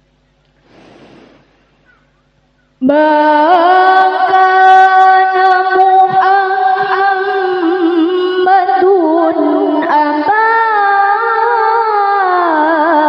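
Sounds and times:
woman chanting melodically: 2.8 - 13.0.

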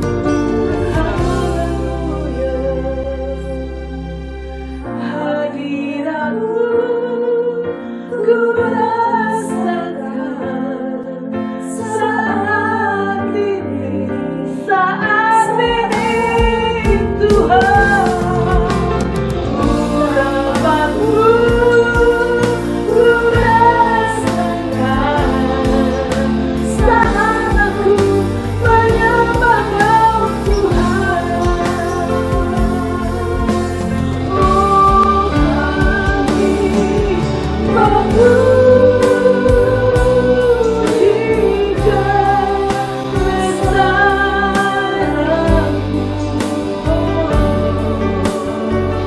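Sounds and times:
bass guitar and drums: 0.0 - 4.8, 15.8 - 49.0
keyboard: 0.0 - 49.0
women singing together: 8.2 - 49.0.

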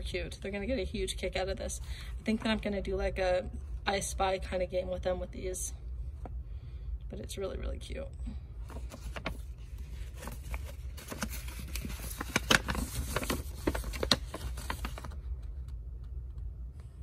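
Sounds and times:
paper rustling and crackling: 8.6 - 15.8.

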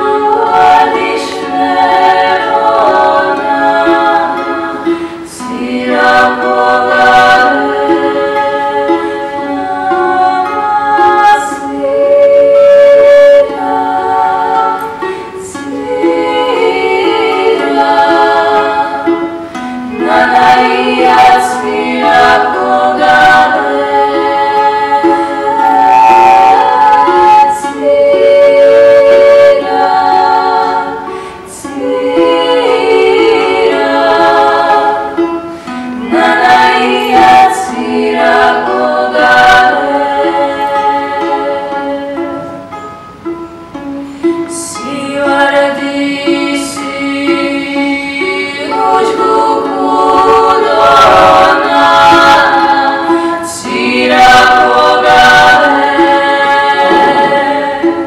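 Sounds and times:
plucked lute: 0.0 - 58.0
women singing in harmony: 0.0 - 58.0.

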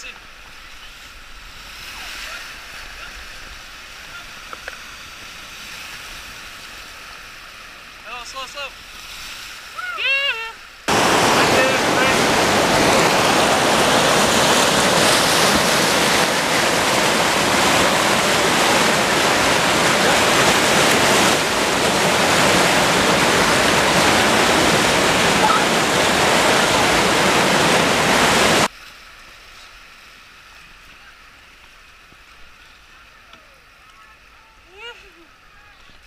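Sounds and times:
whitewater rapids rushing: 0.0 - 8.8, 9.5 - 28.7.

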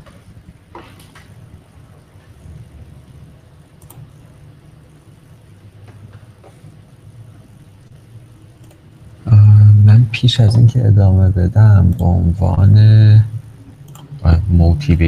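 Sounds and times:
faint low rumble: 0.0 - 15.0
faint clicks: 3.8 - 4.1, 13.8 - 14.1.

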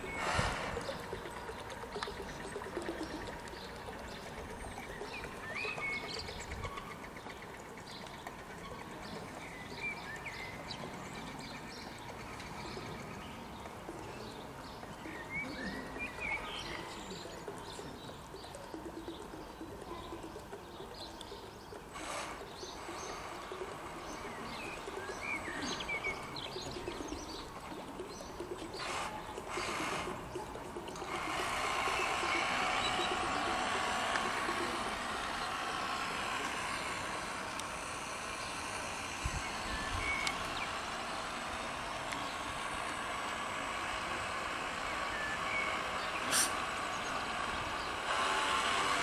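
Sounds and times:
birds chirping: 0.0 - 49.0
faint outdoor hiss: 0.0 - 49.0
rising and falling whistled calls: 14.2 - 49.0
short rush of noise: 46.3 - 46.6.

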